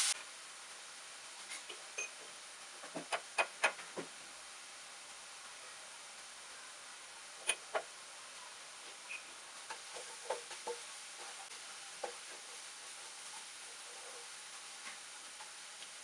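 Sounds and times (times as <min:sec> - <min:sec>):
faint steady hiss: 0:00.0 - 0:16.0
spatula scraping pan: 0:09.7 - 0:15.6.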